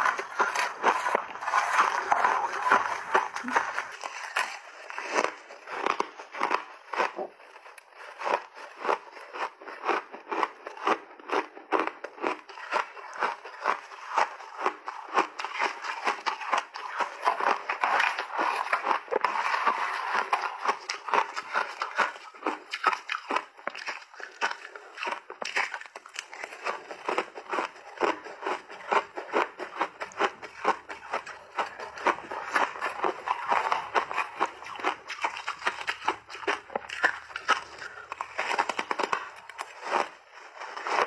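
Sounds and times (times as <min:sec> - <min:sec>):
chewing crunchy ice: 0:00.0 - 0:41.0.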